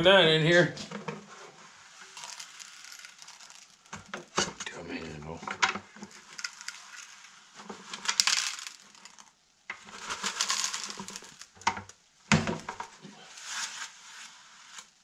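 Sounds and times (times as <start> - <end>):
water and gravel swishing in pan: 1.6 - 4.4, 6.1 - 11.6
stones clicking against pan: 2.0 - 4.7, 5.5 - 7.2, 7.9 - 12.9.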